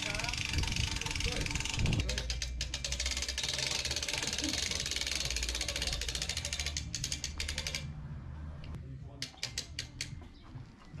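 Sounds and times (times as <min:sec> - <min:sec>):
rapid mechanical clicks: 0:00.0 - 0:07.9.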